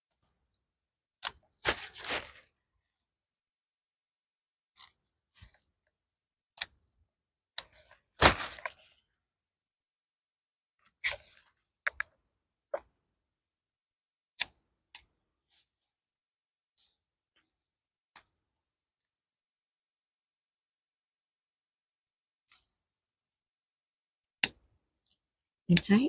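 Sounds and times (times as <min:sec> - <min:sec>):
leaves rustling: 0:08.2 - 0:08.8
sharp clicks and snaps: 0:11.8 - 0:12.2.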